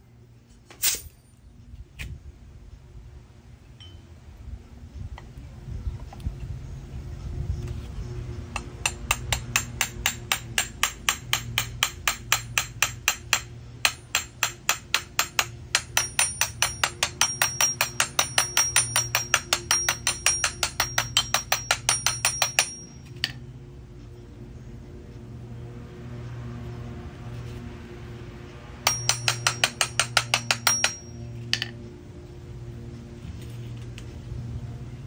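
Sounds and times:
hammer tapping on metal pulley: 8.6 - 23.4, 28.9 - 31.7.

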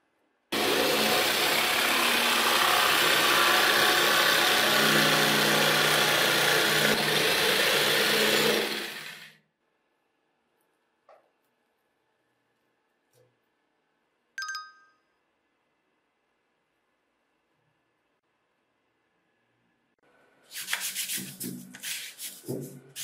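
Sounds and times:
electric jigsaw cutting wood: 0.5 - 9.4.

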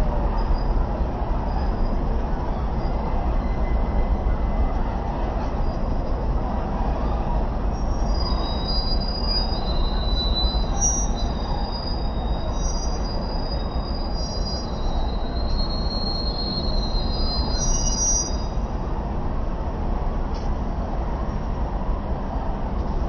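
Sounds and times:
heavy road traffic rumble: 0.0 - 23.0
high squealing tones: 7.7 - 18.6.

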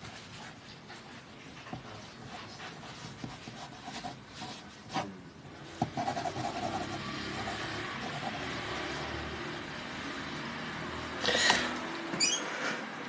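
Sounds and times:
pencil scratching on paper: 1.7 - 5.1, 5.7 - 8.8.

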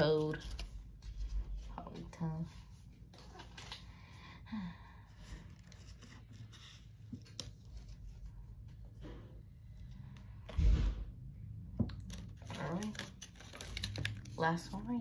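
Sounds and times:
trading cards rustling: 0.0 - 4.2, 12.0 - 14.9.

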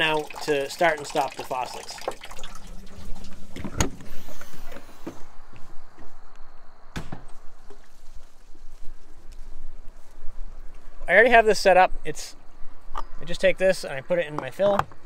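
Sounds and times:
footsteps: 2.4 - 11.1
handling rustle: 7.1 - 11.0.

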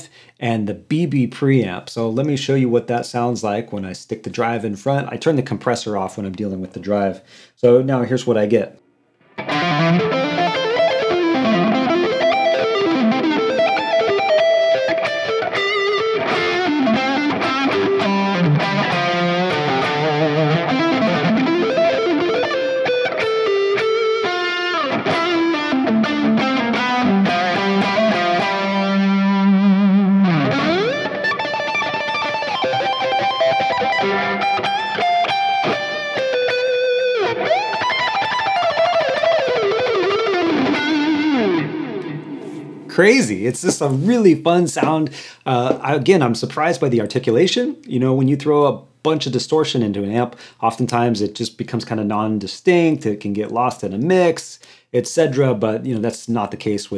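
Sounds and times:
overdriven electric guitar lead: 9.2 - 42.9.

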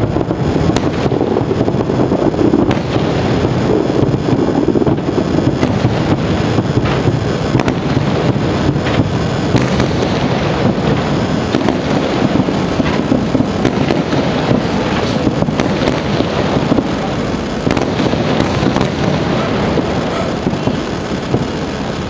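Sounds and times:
fireworks bursts and crackling bangs: 0.0 - 22.0.

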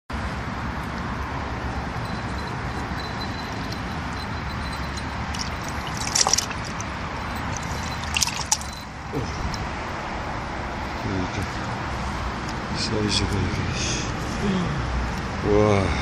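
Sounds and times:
fish thrashing in water: 3.6 - 8.8
water splashing in a bucket: 5.2 - 8.8.

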